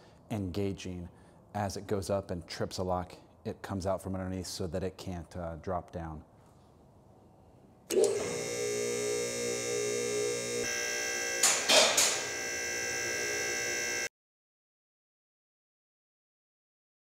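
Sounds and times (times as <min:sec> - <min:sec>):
hydraulic pump whining: 0:07.9 - 0:14.1.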